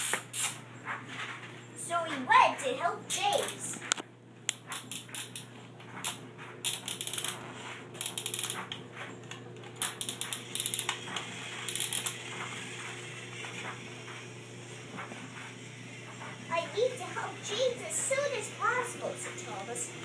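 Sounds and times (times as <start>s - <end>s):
toy turntable plastic clicking: 4.6s - 7.4s, 8.0s - 12.3s.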